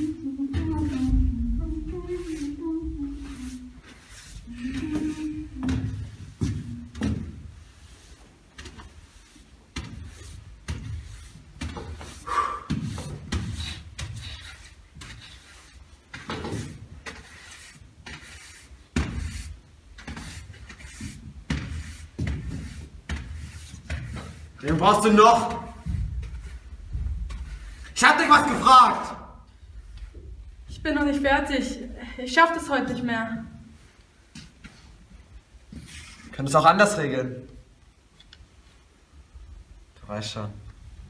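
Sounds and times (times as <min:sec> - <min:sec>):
footsteps on wooden floor: 0:00.4 - 0:17.2, 0:18.9 - 0:27.8
push broom brushing boards: 0:01.8 - 0:26.7.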